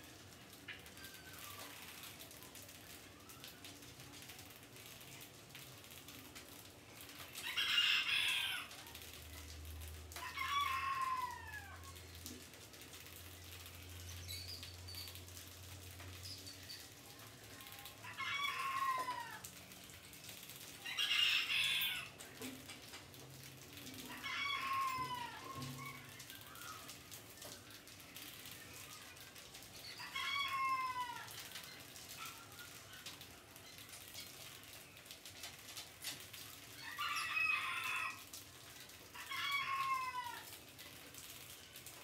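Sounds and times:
chickens calling: 7.4 - 8.8, 20.8 - 22.2, 24.1 - 26.5, 29.8 - 31.3.

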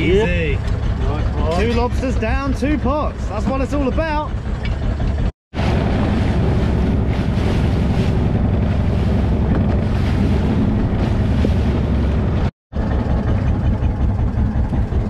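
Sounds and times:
boat engine running: 0.0 - 15.0
water rushing along hull: 0.0 - 15.0
wind buffeting microphone: 4.6 - 12.5.

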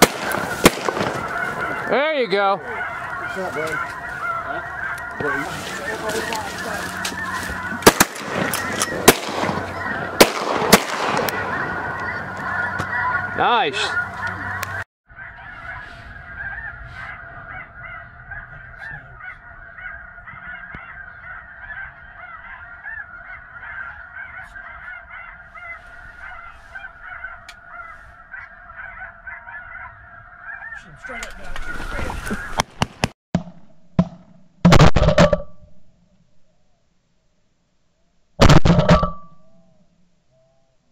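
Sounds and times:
shotgun shots: 0.0 - 1.3, 7.8 - 11.6
snow geese calling: 0.0 - 32.8.

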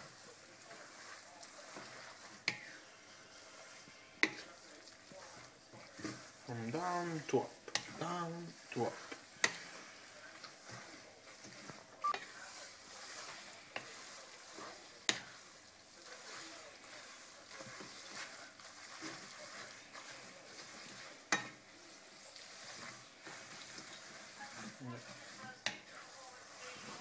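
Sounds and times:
food sizzling in frying pan: 0.0 - 27.0
spatula knocking against pan: 21.3 - 21.6.

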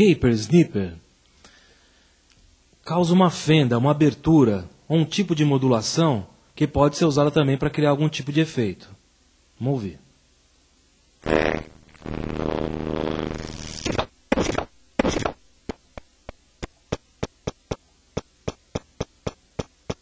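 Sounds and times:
short electronic blips: 11.2 - 15.8
harsh buzzy chopped drone: 11.2 - 16.0.

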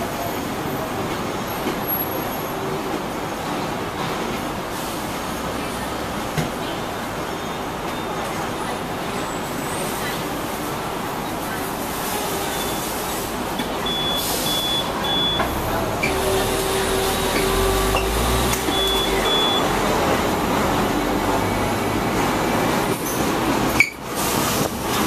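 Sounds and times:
traffic: 0.0 - 25.0
tram rumbling: 0.0 - 25.0
short high electronic beeps: 13.8 - 19.8.

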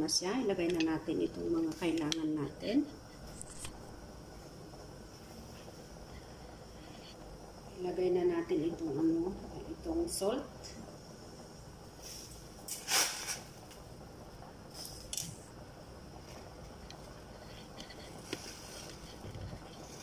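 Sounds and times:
salt rustling into a pot: 11.9 - 20.0.

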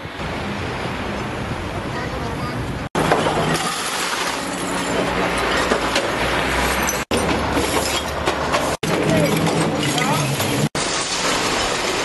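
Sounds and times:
glass bottles clinking and scraping: 3.0 - 12.0.

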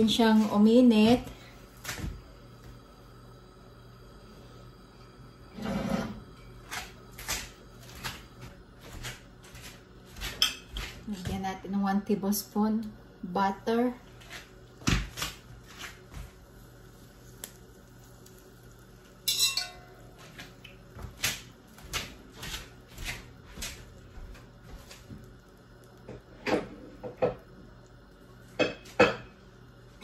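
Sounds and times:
butter crackling and popping in wok: 14.7 - 22.1.

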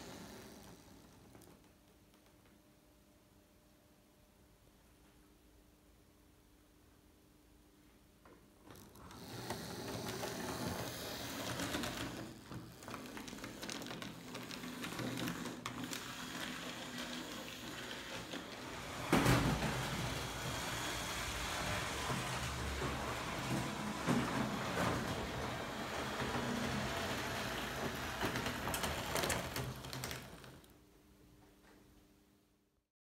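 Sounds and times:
wheels clattering over track: 9.3 - 30.7.

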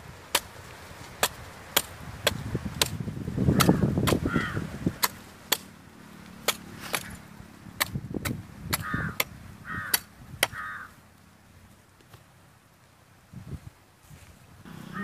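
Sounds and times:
machete chopping coconut: 0.3 - 0.5, 1.2 - 4.3, 5.0 - 5.7, 6.4 - 7.2, 7.8 - 10.6.

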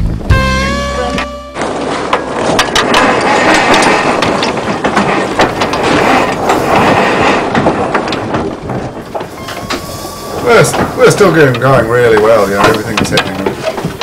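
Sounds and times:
wind: 0.0 - 14.0
water rushing: 0.8 - 14.0
deck gear clicking and rattling: 1.2 - 14.0.

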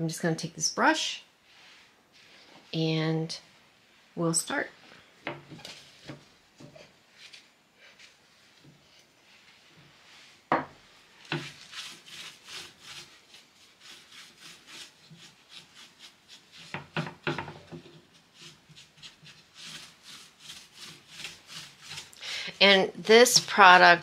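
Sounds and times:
brush scrubbing wood: 11.0 - 24.0.

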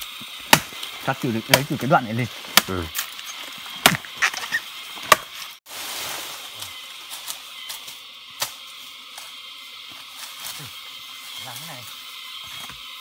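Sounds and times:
blade chopping plant stalk: 0.5 - 0.9.

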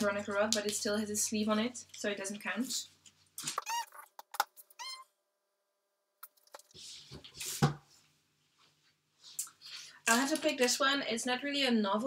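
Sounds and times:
short high squeaks: 3.6 - 4.1, 4.7 - 5.1.

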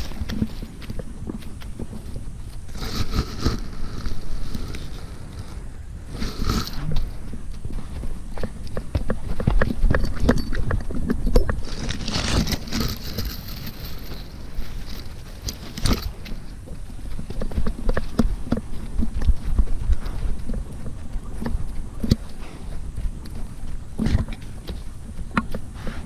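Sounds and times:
rustling through dry ferns: 0.0 - 8.6, 11.6 - 26.0
camera jolting: 11.6 - 16.2.

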